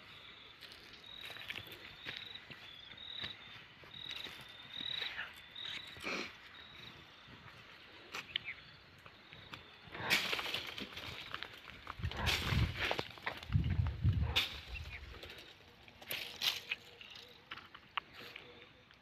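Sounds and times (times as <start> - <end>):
insect chirping: 0.0 - 19.0
stick thrashing leafy branches: 12.1 - 13.5.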